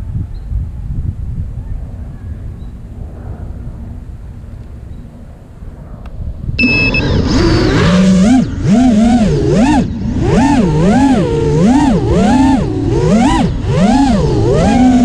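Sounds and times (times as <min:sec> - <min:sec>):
drone motors whining: 0:02.1 - 0:15.0.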